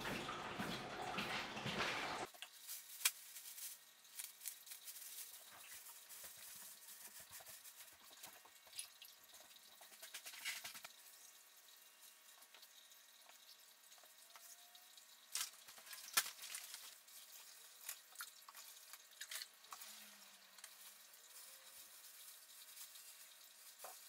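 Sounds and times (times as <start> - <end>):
water dripping: 0.0 - 2.6, 3.5 - 24.0
plastic bag rustling: 1.8 - 8.4, 15.3 - 18.1, 18.8 - 24.0.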